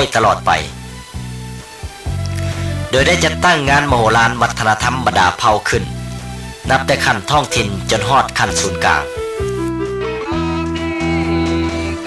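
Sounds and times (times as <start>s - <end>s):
plucked-string instrumental music: 5.7s - 12.0s.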